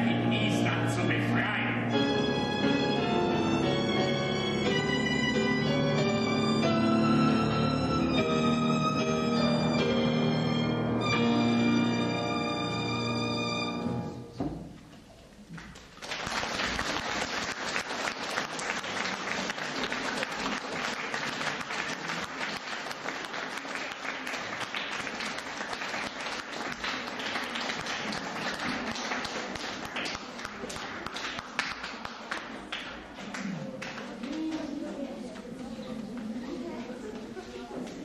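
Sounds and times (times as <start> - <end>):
violin and piano piece: 0.1 - 14.3
audience applause: 15.6 - 34.9.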